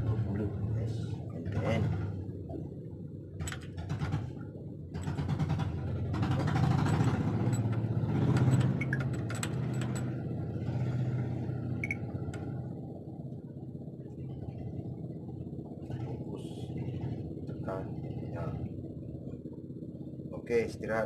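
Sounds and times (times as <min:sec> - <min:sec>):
low mechanical hum: 0:00.0 - 0:21.0
metal clinks and scraping: 0:06.6 - 0:10.1.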